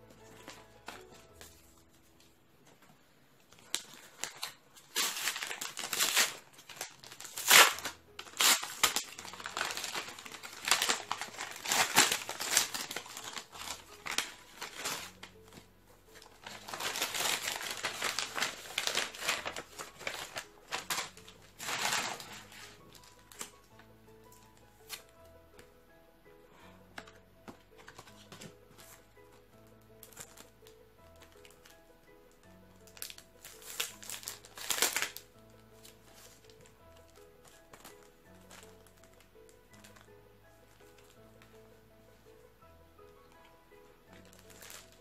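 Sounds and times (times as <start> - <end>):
plastic packaging crinkling: 3.5 - 23.7, 30.0 - 31.7, 32.8 - 41.2, 44.1 - 45.0.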